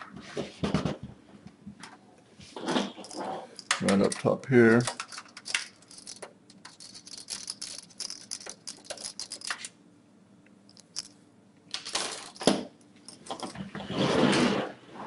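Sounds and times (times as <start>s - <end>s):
screwdriver clicking and scraping: 3.0s - 4.2s, 4.8s - 9.7s.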